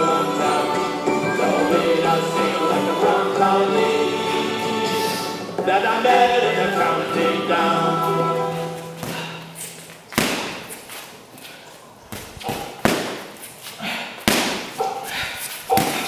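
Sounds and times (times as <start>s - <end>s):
person singing: 0.0s - 9.5s
punches thudding on heavy bag: 10.2s - 10.7s, 12.2s - 13.3s, 14.2s - 14.8s.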